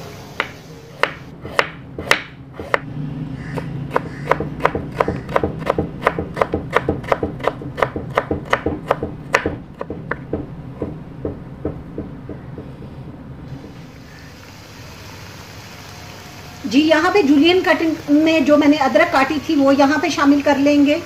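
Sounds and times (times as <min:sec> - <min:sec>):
knife chopping on plastic board: 0:00.4 - 0:02.9, 0:03.6 - 0:12.7.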